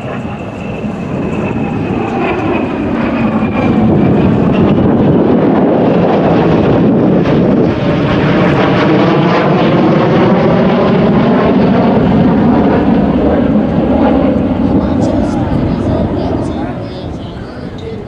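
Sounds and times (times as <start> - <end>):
jet aircraft flying past overhead: 0.0 - 18.0.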